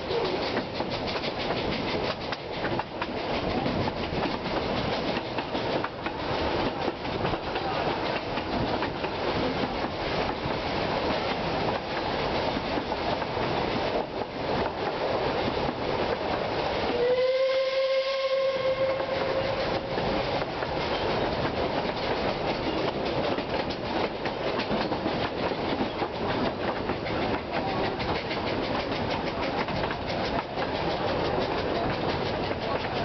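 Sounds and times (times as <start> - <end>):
train wheels clickety-clack: 0.0 - 33.0
steam whistle long note: 16.9 - 19.8.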